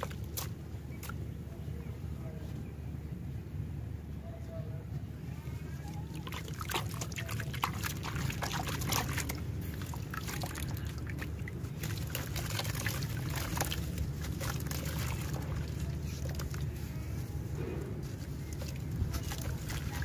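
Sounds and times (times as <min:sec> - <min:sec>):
water trickling in a bucket: 0:05.8 - 0:20.0.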